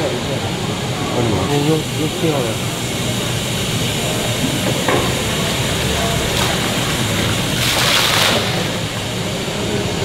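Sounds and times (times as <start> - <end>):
rushing water: 4.0 - 9.4.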